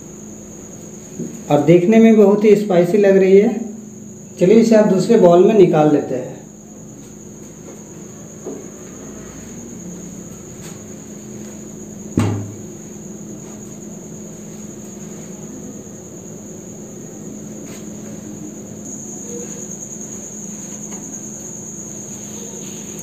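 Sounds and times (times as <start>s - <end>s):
steady high-pitched tone: 18.0s - 23.0s.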